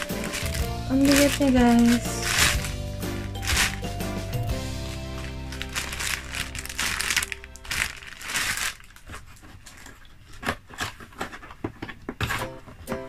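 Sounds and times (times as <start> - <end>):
background music: 0.0 - 8.7
plastic bag crinkling: 0.0 - 12.3.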